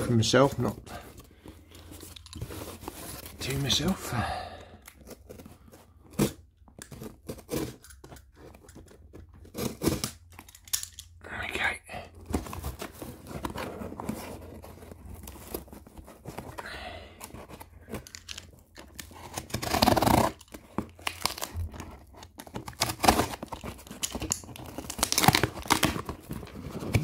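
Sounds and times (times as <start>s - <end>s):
tape and cardboard tearing: 6.1s - 10.9s, 18.0s - 27.0s
knife slicing packing tape: 22.6s - 26.0s.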